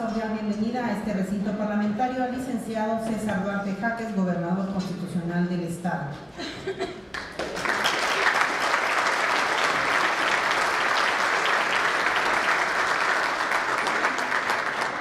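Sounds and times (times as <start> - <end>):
audience applause: 7.1 - 15.0.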